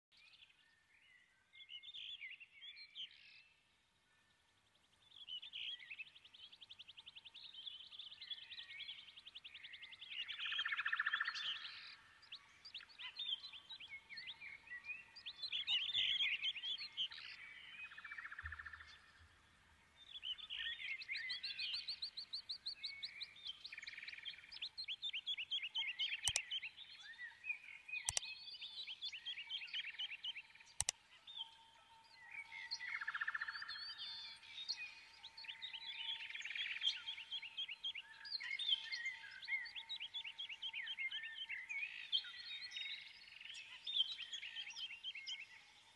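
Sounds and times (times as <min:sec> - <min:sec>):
songbirds chirping and trilling: 0:00.1 - 0:45.9
sharp clicks: 0:26.2 - 0:26.5, 0:28.0 - 0:28.3, 0:30.8 - 0:31.0.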